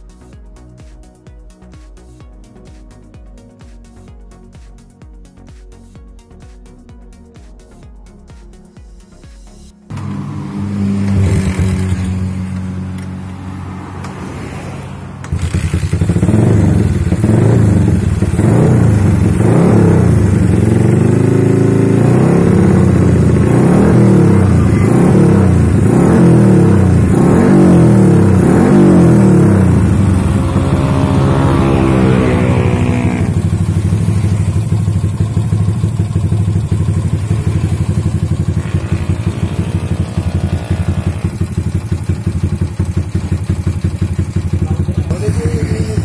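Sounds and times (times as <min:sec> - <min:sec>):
motorcycle engine revving: 0:09.9 - 0:46.0.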